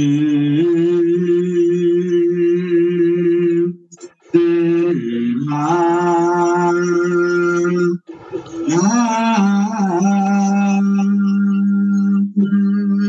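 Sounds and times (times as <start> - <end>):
voices chanting long notes: 7.5 - 11.4.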